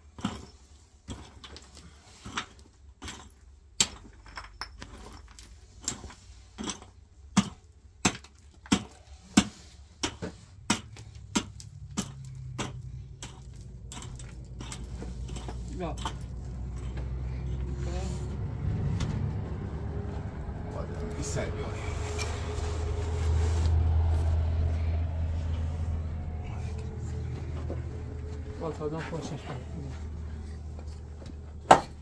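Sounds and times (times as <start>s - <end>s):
pick striking stony ground: 6.6s - 14.9s.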